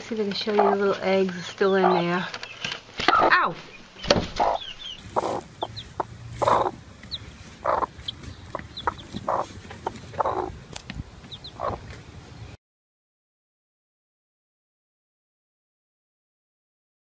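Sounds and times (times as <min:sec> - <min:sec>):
hen clucking: 0:00.0 - 0:12.0.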